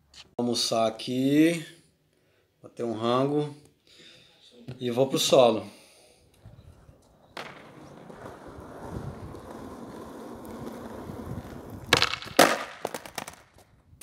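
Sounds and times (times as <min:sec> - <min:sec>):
skateboard wheels rolling on concrete: 0:06.3 - 0:14.0
skateboard clattering: 0:06.8 - 0:13.7
skateboard tail popping: 0:07.0 - 0:14.0.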